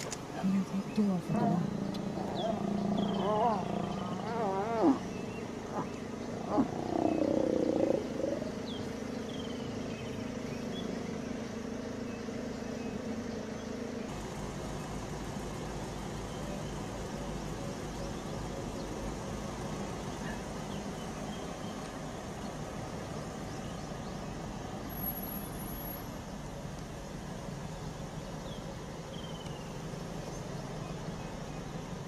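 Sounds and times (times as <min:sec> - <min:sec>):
vehicle engine idling: 0:00.0 - 0:32.0
lion growling: 0:01.2 - 0:08.9.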